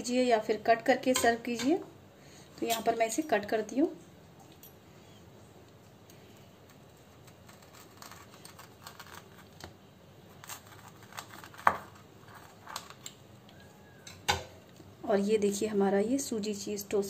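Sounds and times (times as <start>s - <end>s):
pizza cutter crunching toast: 6.4s - 13.2s.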